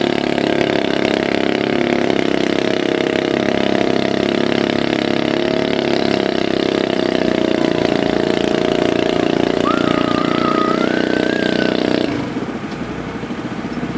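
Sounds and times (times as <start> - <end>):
tractor engine running: 0.0 - 13.9
faint wavering high tone: 7.5 - 8.4, 9.5 - 12.0.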